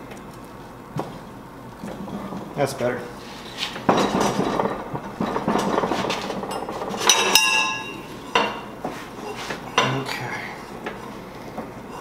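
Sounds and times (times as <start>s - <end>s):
metal bar scraping through rollers: 3.3s - 10.0s
metal clinks: 6.5s - 8.1s
metal bar clanking and ringing: 6.5s - 8.7s.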